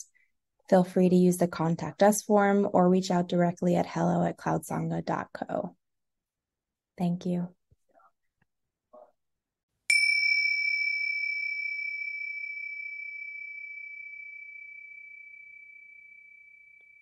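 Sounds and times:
high bell chime ringing: 9.9 - 17.0.

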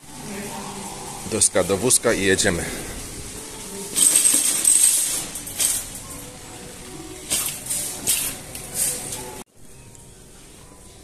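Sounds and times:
shopping cart rattling and jingling: 4.0 - 6.1.

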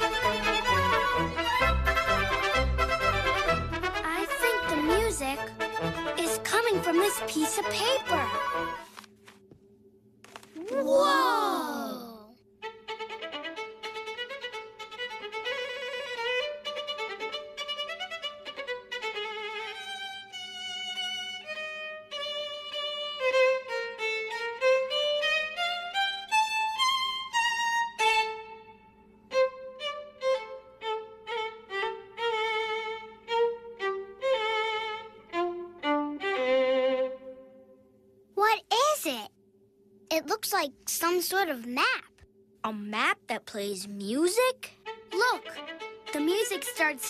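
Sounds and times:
violin melody: 0.0 - 9.0, 12.6 - 37.6, 44.8 - 47.0.

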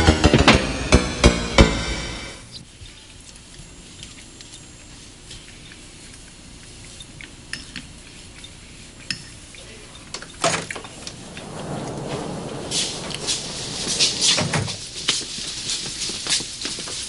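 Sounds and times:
loud knock: 0.0 - 2.4
rustling: 10.7 - 17.0.

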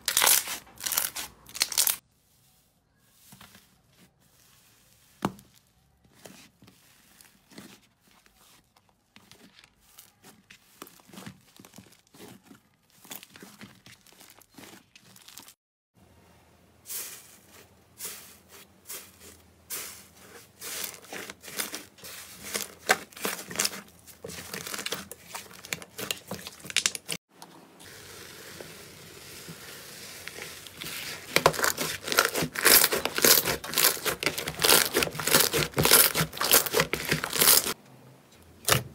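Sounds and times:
crackling slime crust: 0.0 - 2.0, 5.1 - 15.6, 20.6 - 27.2, 28.4 - 37.8
hands squeezing slime: 28.0 - 37.8.

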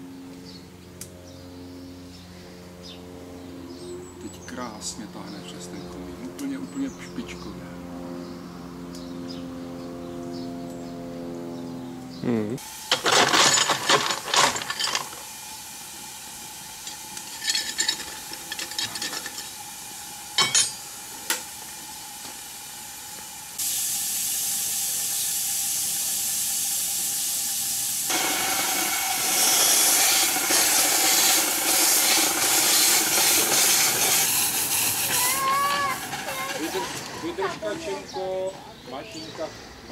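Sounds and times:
steam locomotive hissing steam: 12.6 - 38.3.

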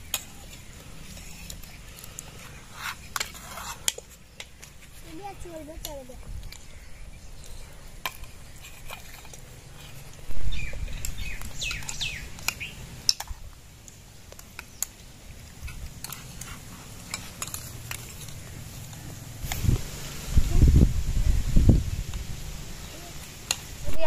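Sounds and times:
bird chirps: 9.6 - 12.9.

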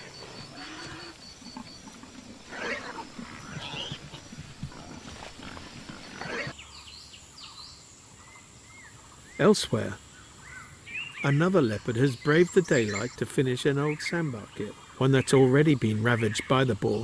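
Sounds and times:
leopard growling: 0.0 - 6.6.

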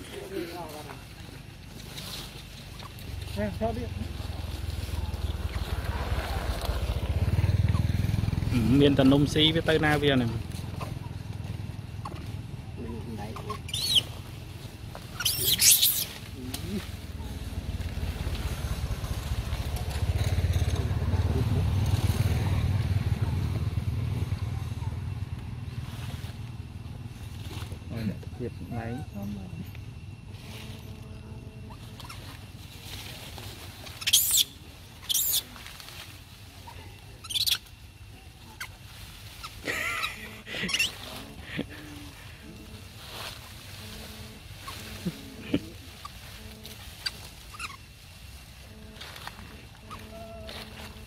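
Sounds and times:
small engine running: 1.8 - 51.0
baby monkeys crying: 13.3 - 14.2, 15.1 - 16.2, 33.9 - 35.6, 36.6 - 37.7, 39.4 - 42.3, 49.8 - 50.8.

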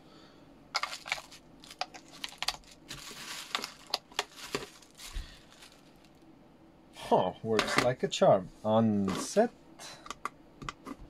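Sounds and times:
plastic packaging crinkling: 0.7 - 6.2.

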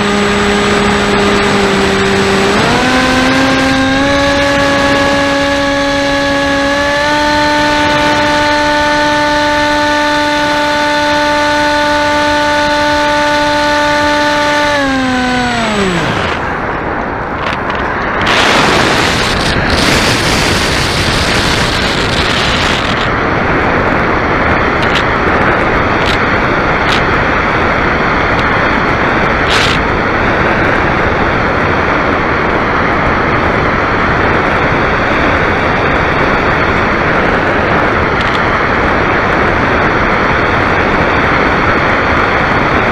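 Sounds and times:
model airplane motor and propeller: 0.0 - 42.9
wind rushing over airframe: 14.0 - 42.9.

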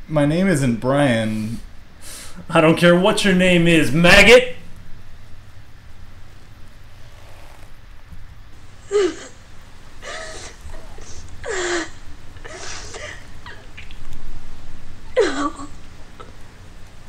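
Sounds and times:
steady low hum: 0.0 - 17.0
woman sobbing: 8.8 - 14.0, 15.2 - 16.4.

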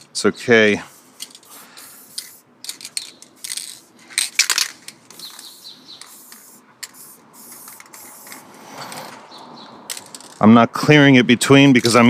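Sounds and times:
spray-paint can hissing: 1.0 - 3.9, 5.2 - 8.6.

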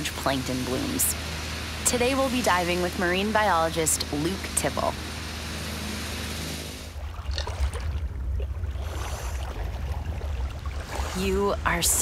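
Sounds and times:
steady rushing hiss: 0.0 - 6.9
low fluttering rumble: 0.0 - 12.0.

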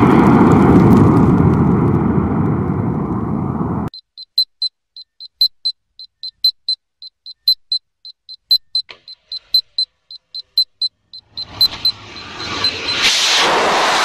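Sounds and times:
rapid electronic beeping: 3.9 - 13.2.

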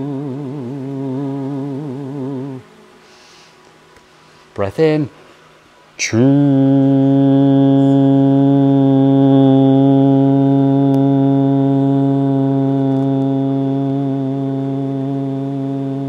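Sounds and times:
low voice holding steady tone: 0.0 - 3.0, 6.0 - 16.0.

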